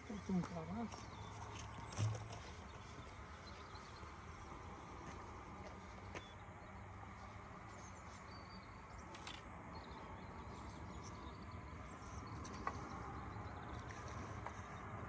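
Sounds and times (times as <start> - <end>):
low steady hum: 0.0 - 15.0
small clicks: 9.0 - 9.5.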